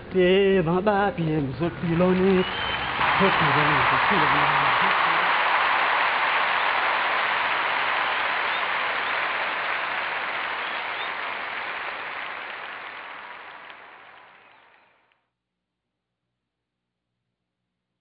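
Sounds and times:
audience applause: 1.9 - 15.0.

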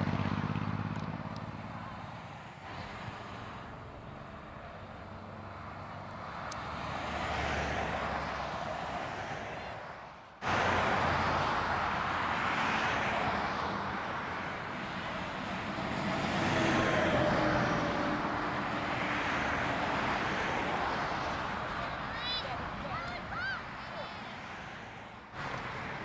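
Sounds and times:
distant engine drone: 0.0 - 9.0.

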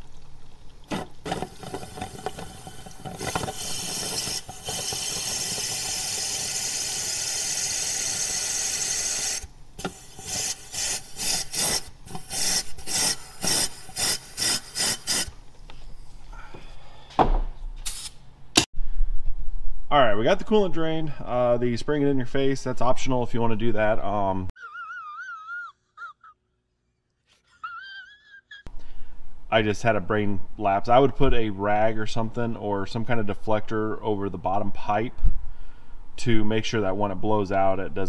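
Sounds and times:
air blowgun hissing: 0.9 - 15.4
short air blasts: 3.0 - 15.4, 17.8 - 18.2.

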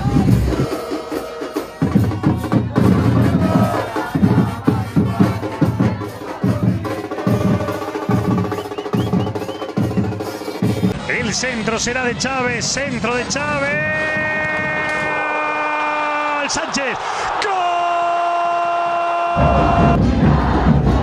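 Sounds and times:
bass drums and snare drums beating: 0.0 - 11.0, 19.4 - 21.0
drum rolls: 0.0 - 11.0, 19.4 - 21.0.

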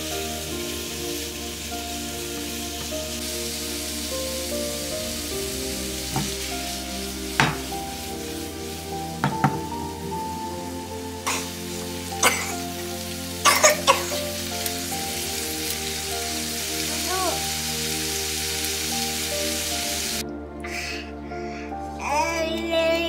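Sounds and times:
vegetables sizzling in a frying pan: 0.0 - 20.2
background music: 0.0 - 23.0
spatula knocking and scraping pan: 7.4 - 7.7, 9.2 - 9.7.

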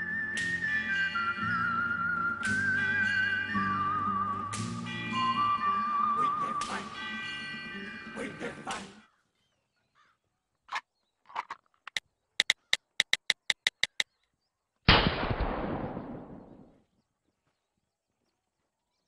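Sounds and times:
phone keypad clicks: 11.9 - 14.0
loud gunshot: 14.9 - 16.6.

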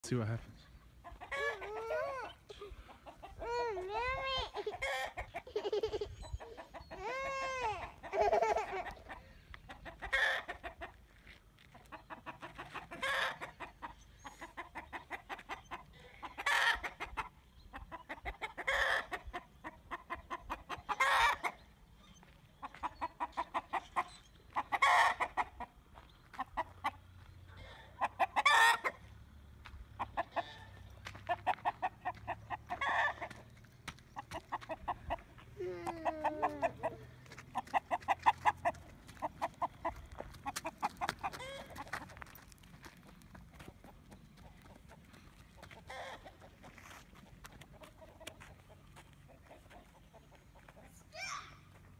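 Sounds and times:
rooster calling: 1.1 - 2.4, 34.5 - 41.8
rapid clucks: 11.7 - 21.6, 22.5 - 27.1, 29.6 - 51.0.

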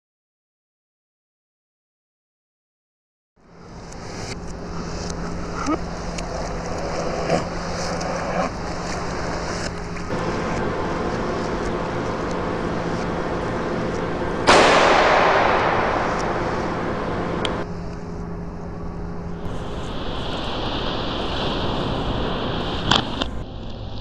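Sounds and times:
steady rushing noise: 3.6 - 24.0
loud crash: 14.5 - 17.7, 19.4 - 23.4.

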